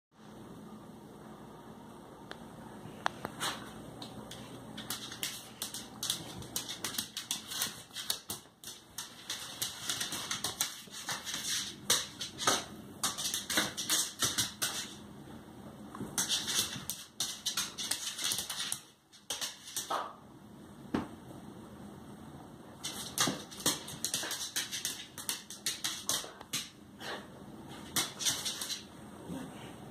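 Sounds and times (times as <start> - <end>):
claws scrabbling on hard floor: 3.3 - 15.0.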